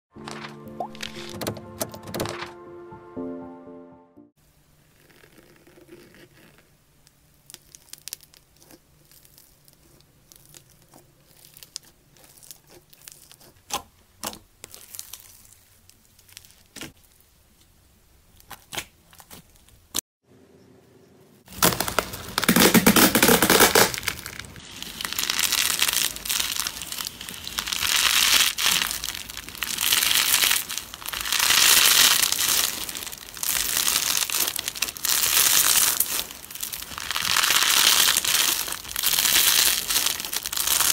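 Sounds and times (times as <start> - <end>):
slime crinkling and crunching: 7.4 - 17.3, 21.5 - 40.9
foam beads crackling: 21.5 - 40.9.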